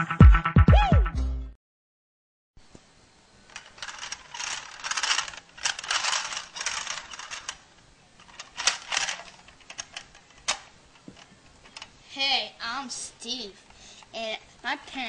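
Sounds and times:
plastic toy car rattling: 0:03.5 - 0:07.6, 0:08.2 - 0:11.9.

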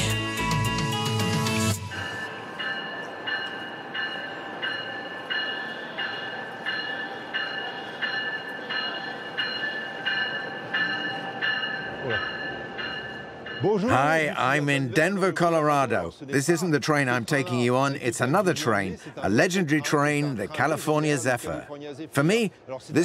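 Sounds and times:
train bell ringing: 0:00.0 - 0:15.7
station platform rumble: 0:00.1 - 0:14.6.

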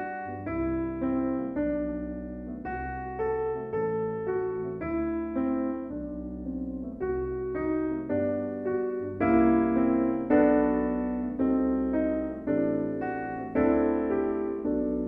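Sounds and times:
piano chords: 0:00.0 - 0:15.0.

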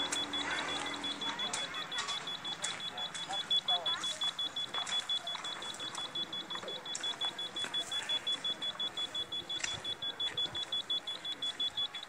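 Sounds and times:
rapid high-pitched beeps: 0:00.0 - 0:12.0.

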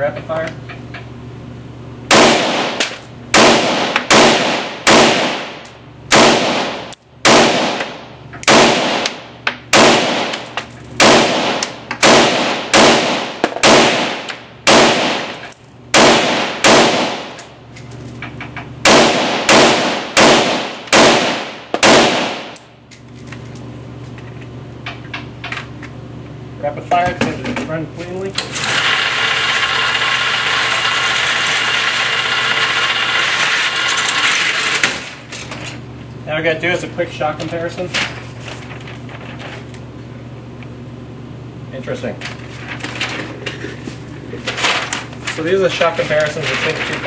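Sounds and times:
rifle shots echoing indoors: 0:02.1 - 0:17.4, 0:18.8 - 0:22.6.

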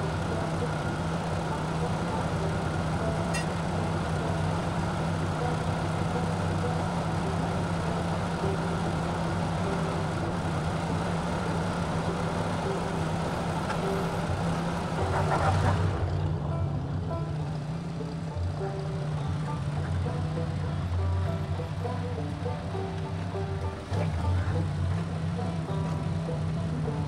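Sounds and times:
tractor engine idling: 0:00.0 - 0:27.0.

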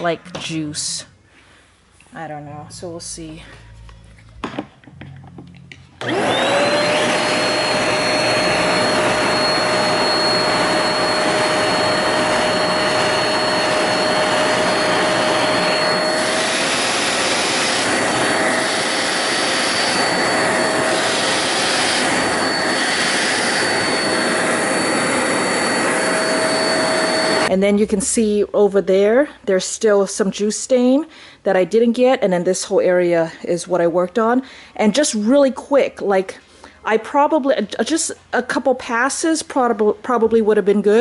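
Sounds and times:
carpet cleaner motor whine: 0:06.0 - 0:27.5
loud suction hiss: 0:20.8 - 0:27.5.

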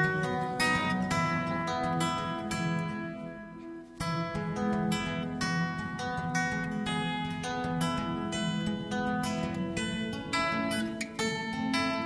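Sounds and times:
acoustic guitar: 0:00.0 - 0:12.0.

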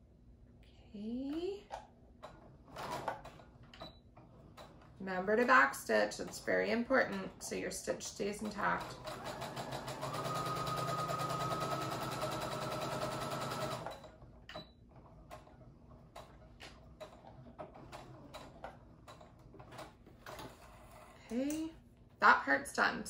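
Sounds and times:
sewing machine running: 0:08.2 - 0:14.3.

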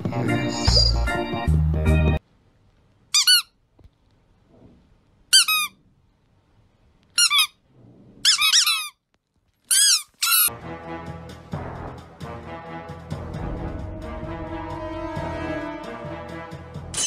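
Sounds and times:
squeaky toy chirping: 0:03.1 - 0:03.6, 0:05.3 - 0:05.8, 0:07.2 - 0:07.6, 0:08.2 - 0:09.0, 0:09.7 - 0:10.5.

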